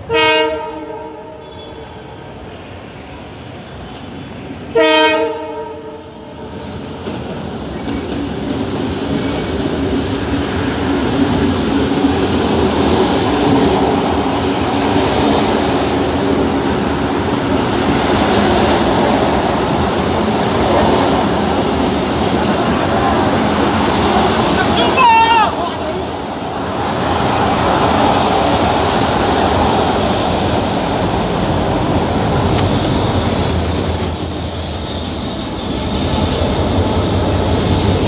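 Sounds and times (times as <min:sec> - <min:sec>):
train horn: 0:00.0 - 0:02.0, 0:04.7 - 0:06.4
train wheels clattering on rails: 0:06.4 - 0:38.0.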